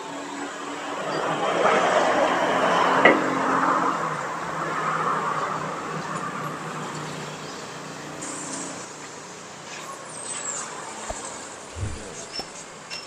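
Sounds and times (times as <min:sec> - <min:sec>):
vehicle engine passing: 0:11.1 - 0:12.4.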